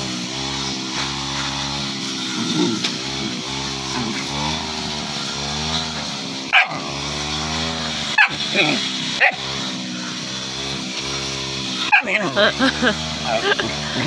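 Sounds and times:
puppy growling: 2.4 - 4.6, 6.5 - 7.2, 8.2 - 9.5
puppy yapping: 6.5 - 6.9, 8.2 - 9.5, 11.9 - 12.2.

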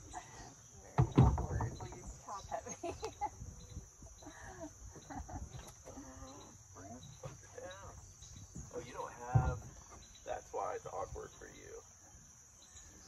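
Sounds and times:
kayak thudding on ground: 8.5 - 10.1.

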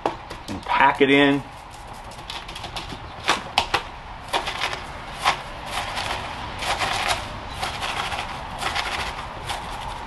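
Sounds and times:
chopstick stirring gritty soil: 0.8 - 10.0.

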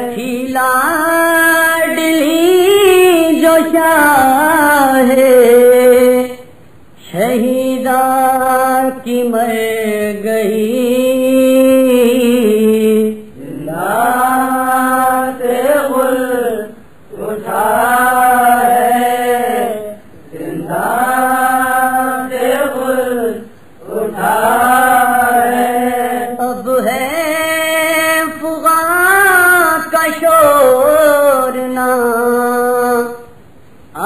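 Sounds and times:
man chanting a lament: 0.0 - 33.3.

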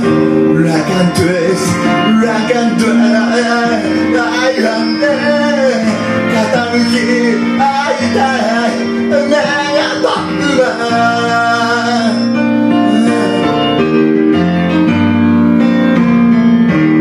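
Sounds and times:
man singing karaoke: 0.0 - 14.0
backing track music: 0.0 - 17.0.

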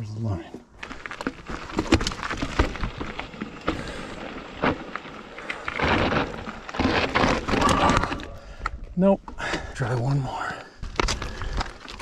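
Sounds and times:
bike scraping over rock: 0.7 - 8.8, 10.8 - 12.0
bike knocking on rock: 0.8 - 8.2.

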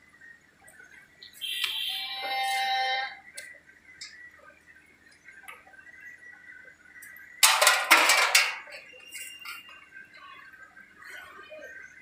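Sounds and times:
metal parts clattering: 7.4 - 8.9.

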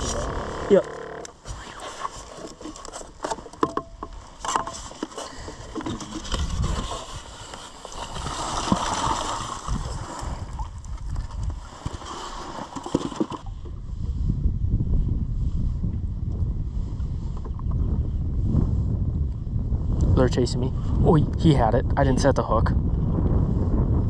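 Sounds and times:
bucket knocking and scraping: 0.0 - 13.8.

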